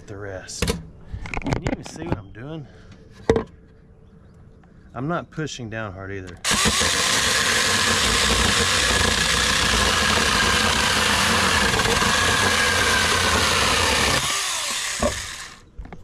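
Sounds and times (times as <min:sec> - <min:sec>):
chain rasping through wood: 0:06.4 - 0:15.6
electric chainsaw motor whine: 0:06.4 - 0:15.6.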